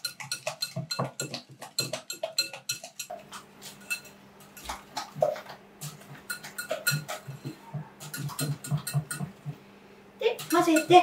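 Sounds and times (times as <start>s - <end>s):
whisk clicking against glass bowl: 0.0s - 9.5s, 10.4s - 11.0s.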